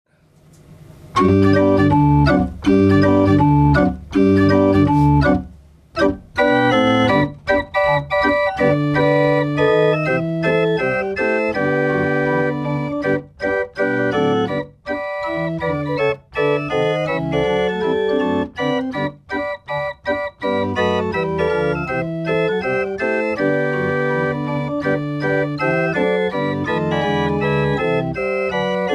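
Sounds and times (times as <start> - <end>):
chest organ playing: 1.1 - 28.9.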